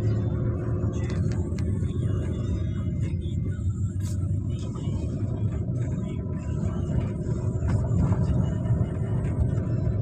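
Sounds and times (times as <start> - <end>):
car engine and tyre rumble: 0.0 - 10.0.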